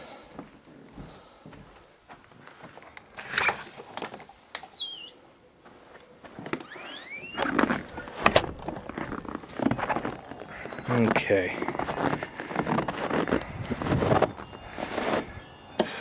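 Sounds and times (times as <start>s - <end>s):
door squeaking on hinges: 4.6s - 5.4s, 6.5s - 11.0s.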